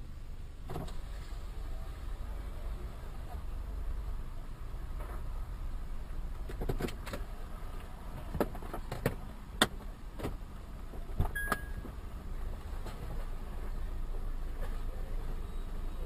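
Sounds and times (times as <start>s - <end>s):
short high beep: 11.4s - 11.9s.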